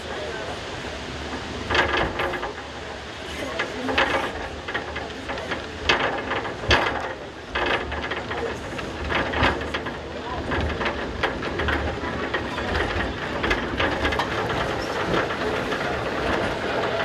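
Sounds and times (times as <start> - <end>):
funicular car rumbling on rails: 0.0 - 17.0
clattering and hissing: 1.2 - 17.0.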